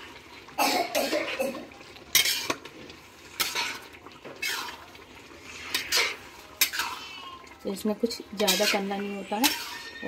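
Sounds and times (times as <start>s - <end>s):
metal spatula scraping a pan: 2.0s - 10.0s.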